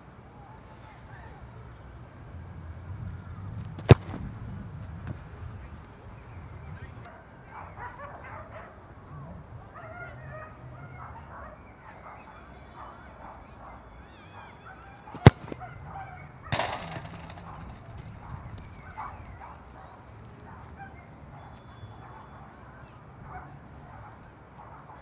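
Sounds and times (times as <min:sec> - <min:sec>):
dull ball impact: 0:03.6 - 0:04.4, 0:15.2 - 0:18.9
football kicked hard: 0:03.6 - 0:05.2, 0:15.2 - 0:15.7, 0:16.5 - 0:18.9.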